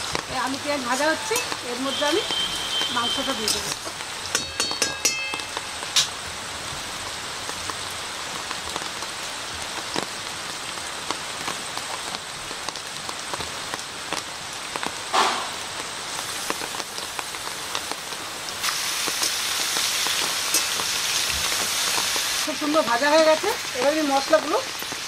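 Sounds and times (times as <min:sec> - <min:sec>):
food sizzling in oil: 0:00.0 - 0:10.1, 0:13.3 - 0:25.0
metal spatula clinking on wok: 0:01.2 - 0:01.6, 0:04.3 - 0:06.1.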